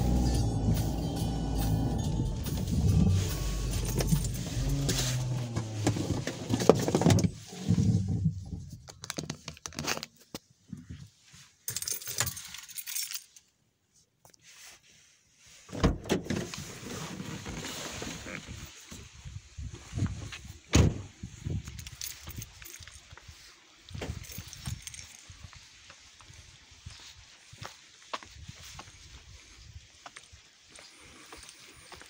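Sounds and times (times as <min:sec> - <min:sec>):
car engine humming: 0:00.0 - 0:08.4
keys jangling: 0:00.1 - 0:05.6, 0:11.7 - 0:13.4, 0:21.6 - 0:23.1, 0:24.1 - 0:25.3.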